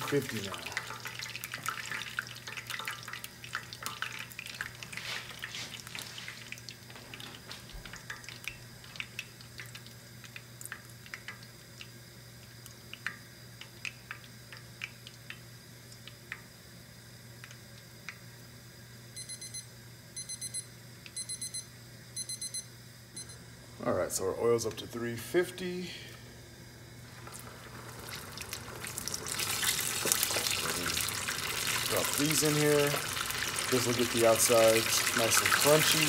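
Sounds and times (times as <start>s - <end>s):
hot oil crackling and popping: 0.0s - 18.6s, 27.0s - 36.0s
thermometer alarm beeping: 19.2s - 23.4s.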